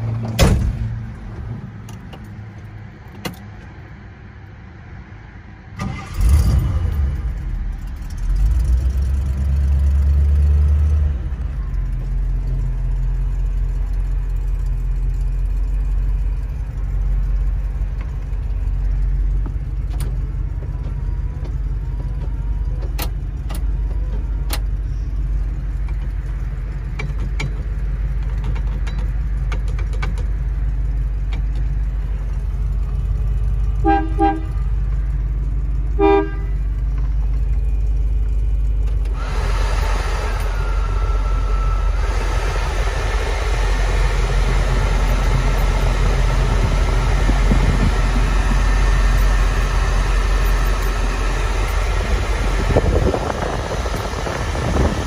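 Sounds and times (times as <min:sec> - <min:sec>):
car engine idling: 0:00.0 - 0:55.0
car horn toots: 0:33.8 - 0:34.6, 0:36.0 - 0:36.6.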